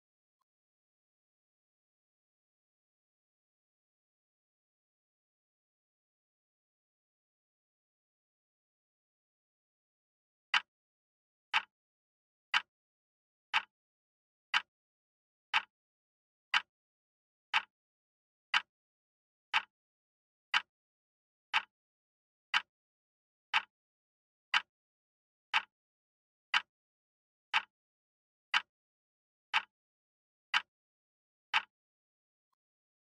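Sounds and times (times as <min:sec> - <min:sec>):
timer ticking: 0:30.5 - 0:30.7, 0:31.5 - 0:31.7.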